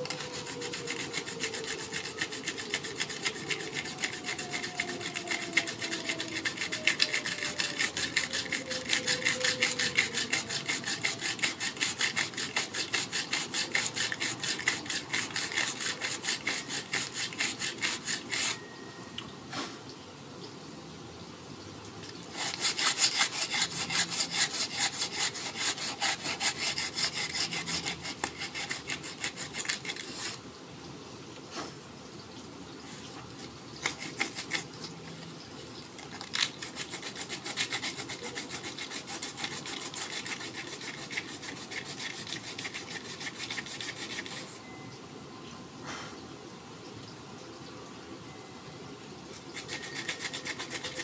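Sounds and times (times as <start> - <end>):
sandpaper rasping on wood: 0.0 - 18.6, 22.3 - 30.4, 33.8 - 34.7, 36.3 - 44.6, 49.5 - 51.0.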